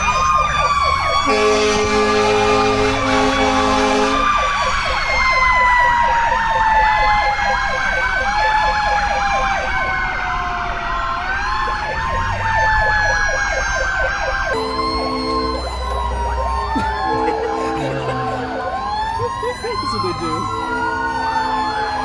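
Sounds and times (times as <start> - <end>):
sirens wailing and yelping: 0.0 - 22.0
steady horn tone: 1.3 - 4.2, 14.5 - 16.2.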